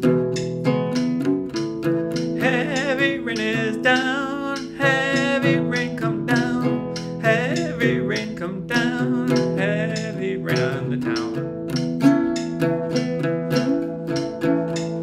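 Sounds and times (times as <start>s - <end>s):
acoustic guitar strumming: 0.0s - 15.0s
man singing: 2.4s - 11.5s.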